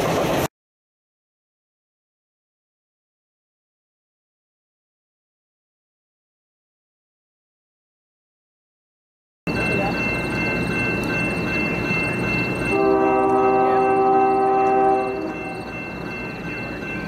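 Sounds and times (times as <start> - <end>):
low rumble of approaching train: 0.0 - 0.5, 9.5 - 17.0
locomotive air horn blast: 12.7 - 15.6.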